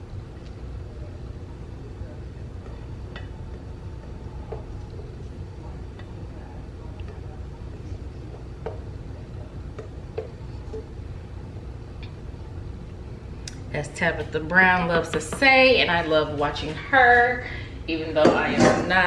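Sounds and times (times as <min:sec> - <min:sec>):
spatula tapping a bowl: 0:09.7 - 0:10.9.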